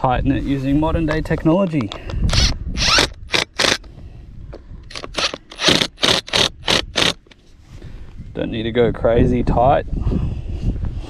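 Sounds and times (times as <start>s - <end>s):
cordless drill driving screws: 2.3s - 3.9s, 4.9s - 7.2s.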